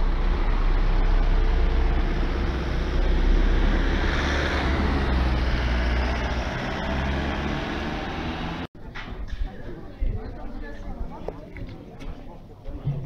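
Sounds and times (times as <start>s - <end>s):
car driving past: 0.0s - 8.7s.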